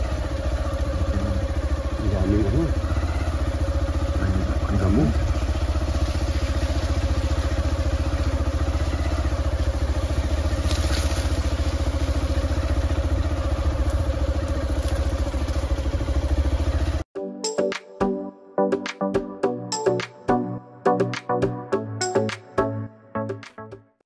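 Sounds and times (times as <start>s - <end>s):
small engine running: 0.0s - 17.1s.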